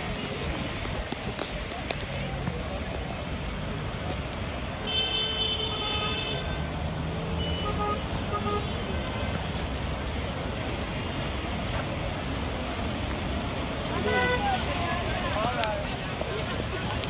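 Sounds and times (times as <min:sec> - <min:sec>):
passing cars: 0:00.0 - 0:17.0
vehicle horn: 0:04.9 - 0:06.6, 0:07.4 - 0:08.8, 0:14.0 - 0:14.5.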